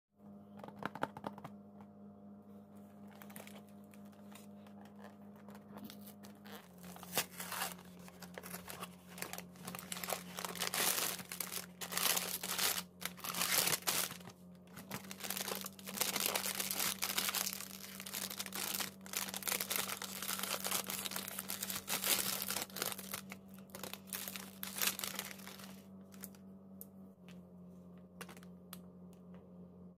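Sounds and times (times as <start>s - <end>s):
low steady hum: 0.2s - 30.0s
plastic wrapper crinkling and tearing: 3.1s - 26.4s.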